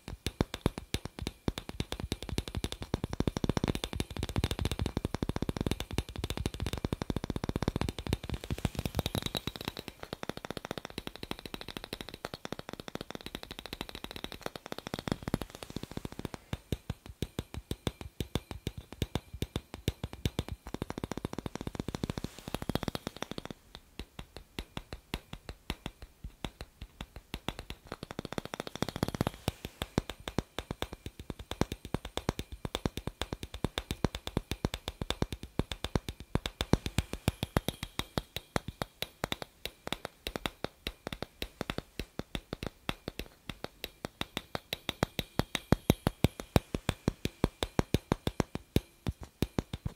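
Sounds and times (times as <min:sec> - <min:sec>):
fingers tapping on glass bulb: 0:00.0 - 0:49.9.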